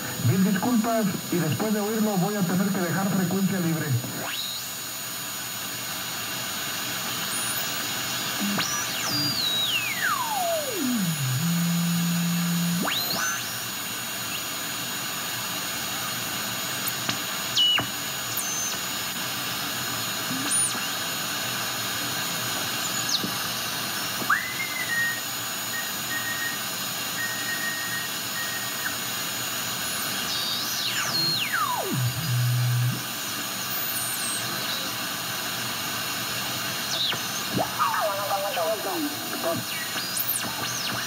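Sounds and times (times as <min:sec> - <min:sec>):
static hiss: 0:00.0 - 0:41.0
heterodyne whistle: 0:08.4 - 0:13.6, 0:24.2 - 0:29.0.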